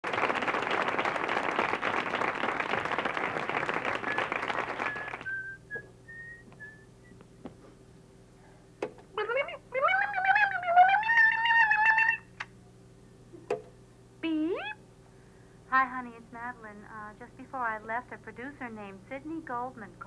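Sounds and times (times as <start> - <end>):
audience applauding: 0.0 - 5.4
person whistling: 4.0 - 7.2.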